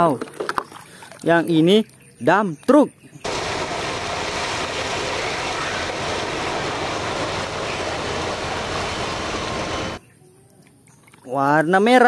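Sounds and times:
haul truck engine running: 3.2s - 10.0s.

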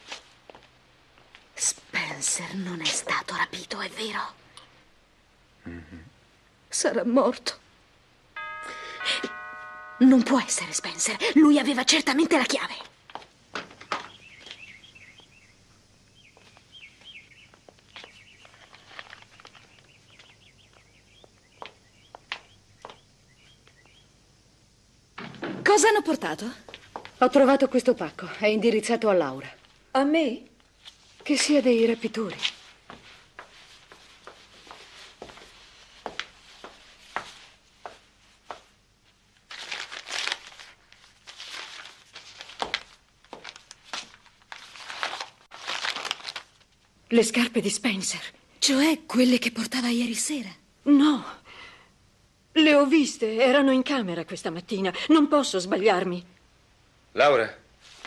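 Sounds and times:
footsteps on porch: 0.0s - 1.7s, 12.4s - 15.3s, 16.1s - 24.0s, 25.2s - 28.3s, 30.6s - 39.5s, 40.9s - 44.6s
birds chirping: 13.8s - 24.2s
paper crinkling and tearing: 39.5s - 46.7s.

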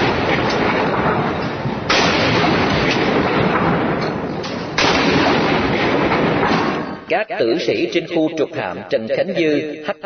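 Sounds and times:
rumble of gunfire: 0.0s - 7.1s
loud blasts: 0.0s - 8.1s.

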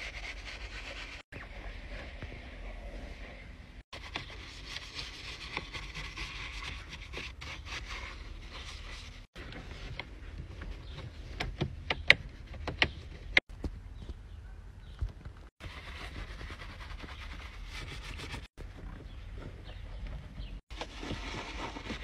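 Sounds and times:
brush scrubbing plastic: 0.0s - 1.2s, 4.0s - 9.9s, 15.6s - 18.6s.

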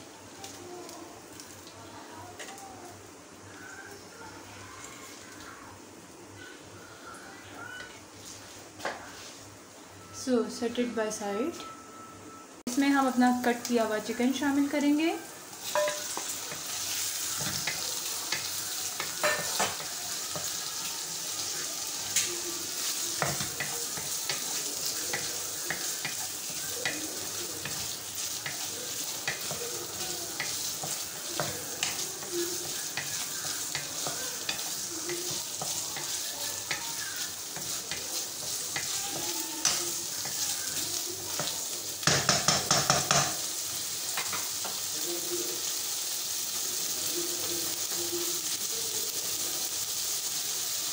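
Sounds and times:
food sizzling in hot fat: 0.0s - 50.9s
spatula scraping a pan: 22.7s - 41.6s.

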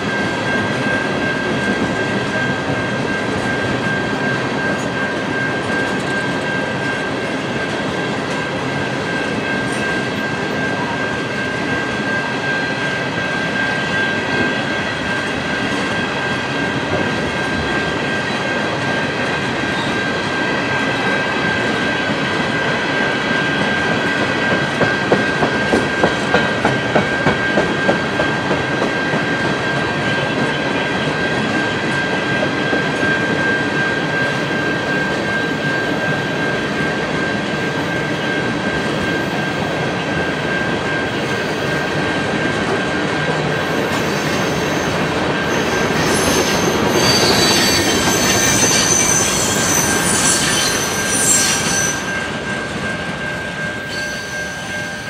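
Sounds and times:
steel wheels rolling on rail: 0.0s - 55.0s
high wheel squeal: 43.5s - 52.4s, 53.2s - 55.0s.

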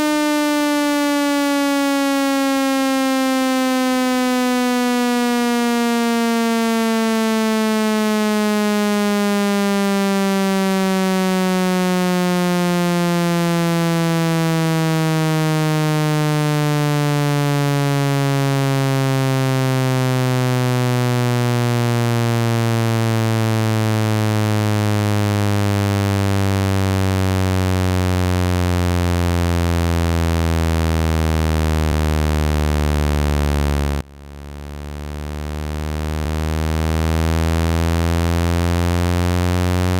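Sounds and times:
buzzy electronic tone sliding down: 22.6s - 39.9s.

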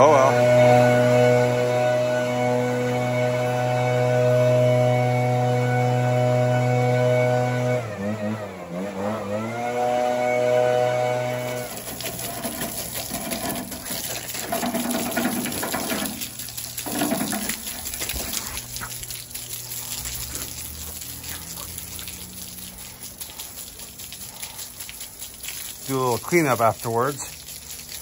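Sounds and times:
water gushing onto concrete: 0.0s - 7.4s, 9.4s - 28.0s
motor drone: 0.0s - 12.4s.

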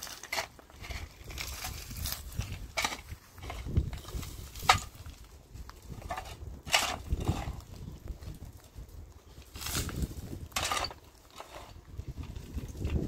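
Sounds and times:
shovel scraping stony soil: 0.0s - 8.4s, 9.4s - 13.0s.

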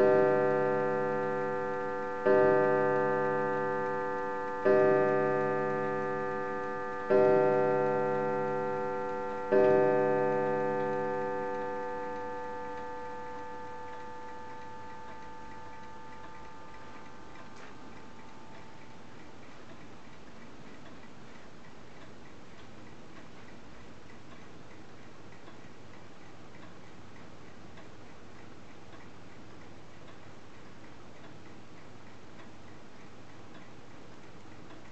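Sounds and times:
clock striking: 0.0s - 20.1s
clock ticking: 0.0s - 34.9s.

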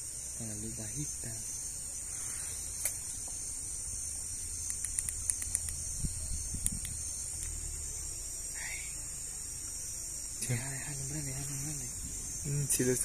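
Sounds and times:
night insects chorus: 0.0s - 13.0s
small clicks: 4.6s - 5.8s.

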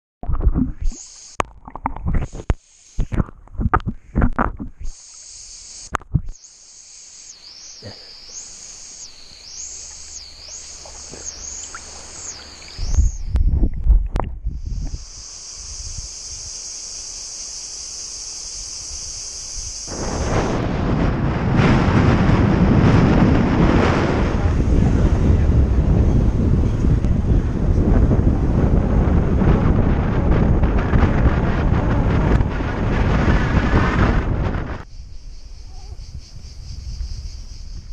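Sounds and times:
water splashing against camera: 0.2s - 6.4s, 8.2s - 15.8s
cicadas buzzing: 0.8s - 1.4s, 2.0s - 13.5s, 14.4s - 21.2s, 33.4s - 37.9s.

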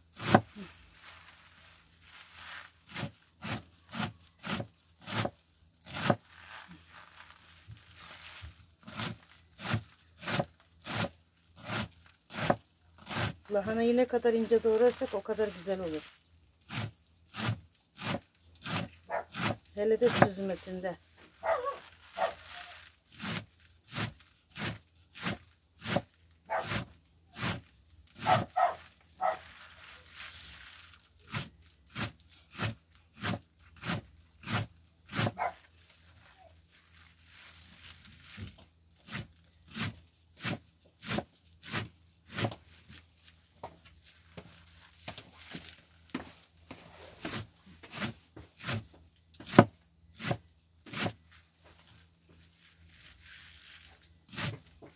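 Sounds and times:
knife chopping cabbage on board: 0.2s - 0.7s, 2.9s - 6.2s, 8.8s - 13.4s, 16.7s - 20.4s, 23.2s - 27.6s, 28.2s - 28.8s, 31.3s - 35.5s, 38.4s - 42.6s, 47.2s - 51.2s, 54.3s - 54.9s.

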